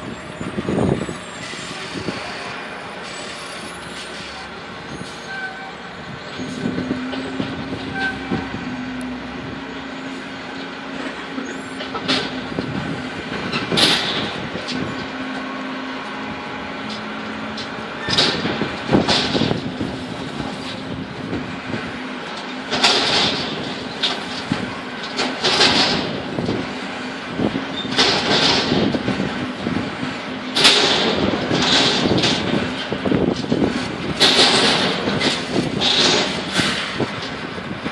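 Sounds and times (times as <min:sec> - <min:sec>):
gusty wind on microphone: 0:00.0 - 0:02.6, 0:04.5 - 0:11.0, 0:11.9 - 0:15.1, 0:18.0 - 0:22.2, 0:25.6 - 0:37.9.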